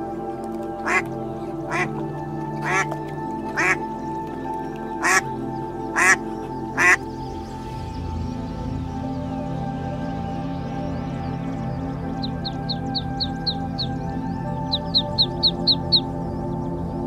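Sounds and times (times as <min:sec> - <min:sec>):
background music: 0:00.0 - 0:17.0
ducks quacking: 0:00.8 - 0:02.0, 0:02.6 - 0:03.9, 0:05.0 - 0:05.3, 0:05.9 - 0:07.0.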